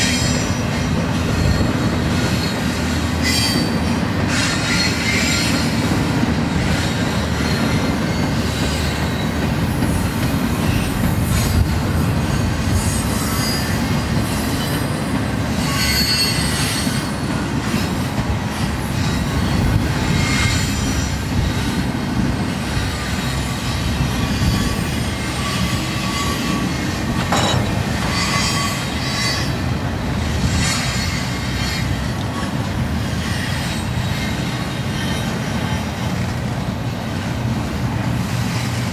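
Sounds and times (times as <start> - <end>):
high-pitched wheel squeal: 0.0 - 9.5, 10.6 - 17.9, 22.9 - 29.7
train wheels rumbling on rail: 0.0 - 38.9.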